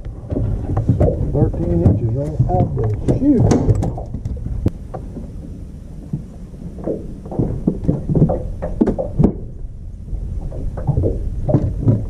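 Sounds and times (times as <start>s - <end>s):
sharp knocks and clatters: 0.0s - 5.4s, 6.1s - 9.7s, 10.4s - 12.0s
soft low knocks: 0.0s - 12.0s.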